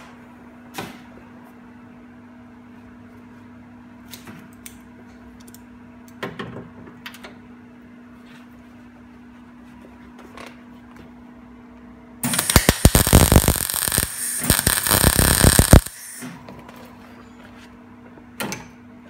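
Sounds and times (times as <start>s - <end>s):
low hum: 12.2s - 16.0s
welding arc crackling: 12.2s - 16.2s.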